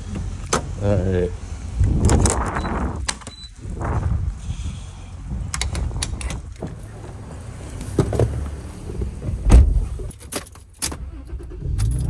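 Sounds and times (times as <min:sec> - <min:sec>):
low rumble: 0:01.4 - 0:07.4
fuel nozzle clicks and clunks: 0:05.4 - 0:06.7
car door shutting: 0:05.7 - 0:12.0.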